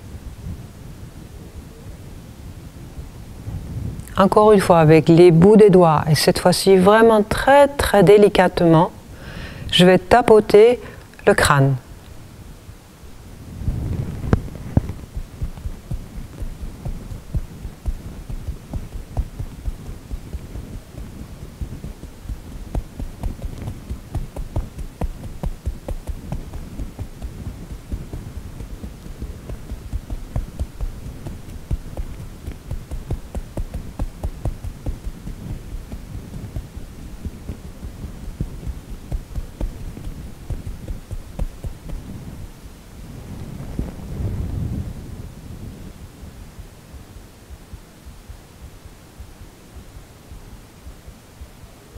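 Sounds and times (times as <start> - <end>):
fingertips tapping on scalp: 14.2 - 42.8.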